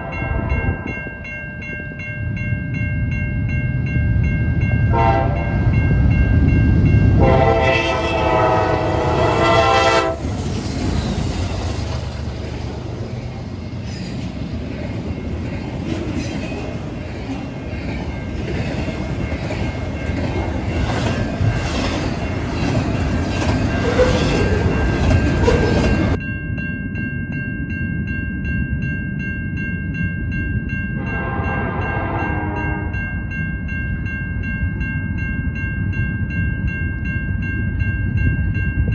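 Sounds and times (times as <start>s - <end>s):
crossing bells ringing: 0.0s - 38.9s
train wheels rumbling on rail: 4.5s - 26.2s
locomotive horn: 4.9s - 5.5s, 7.2s - 10.4s, 31.0s - 33.0s.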